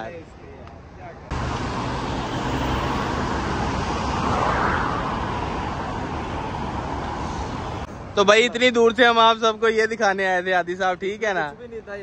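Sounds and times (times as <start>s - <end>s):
road traffic noise: 0.0s - 12.0s
car passing: 1.3s - 8.2s.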